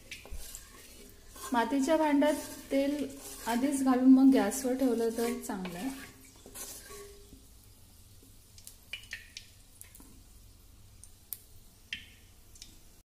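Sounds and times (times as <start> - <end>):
hot oil ticking and popping: 0.0 - 1.5, 8.2 - 10.2, 10.9 - 12.8.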